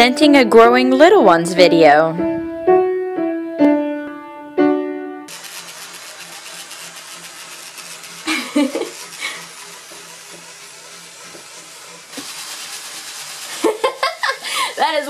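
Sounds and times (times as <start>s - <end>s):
bath toys whirring in water: 5.3s - 15.0s.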